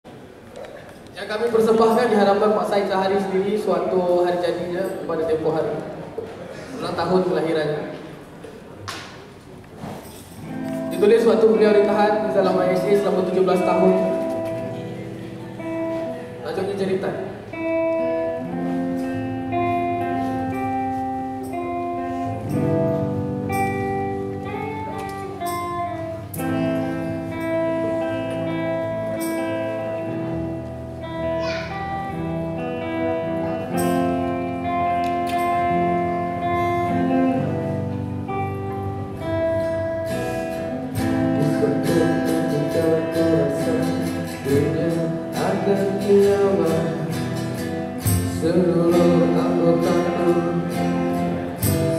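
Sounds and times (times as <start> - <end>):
acoustic guitar: 0.1 - 51.9
electric bass: 12.2 - 51.9.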